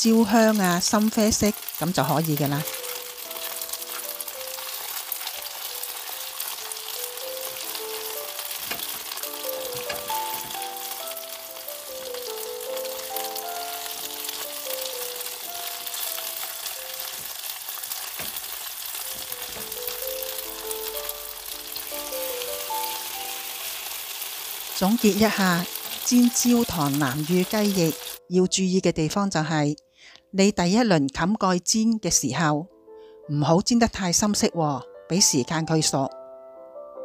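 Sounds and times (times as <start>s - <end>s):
chicken wings sizzling in pan: 0.0s - 28.2s
background music melody: 0.0s - 37.0s
tongs clicking: 2.7s - 11.2s.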